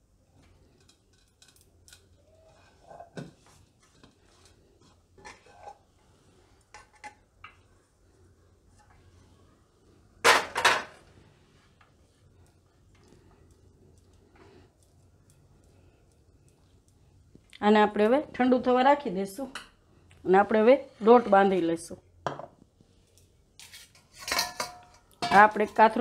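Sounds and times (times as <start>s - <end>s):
utensils clinking on metal plate: 23.6s - 25.9s.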